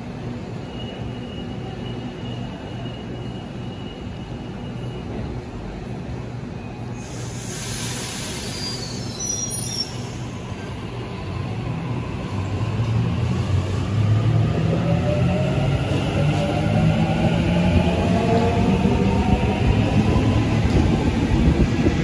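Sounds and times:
hiss burst: 7.0s - 9.0s.

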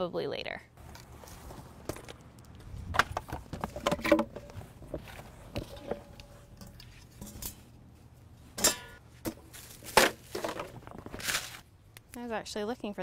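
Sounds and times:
clutter rustling and clattering: 3.0s - 11.7s.

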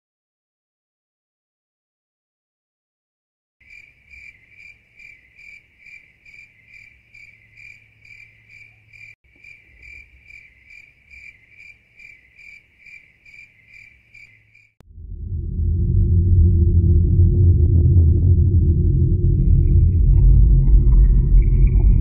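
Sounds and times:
cricket chirping: 3.6s - 14.8s.

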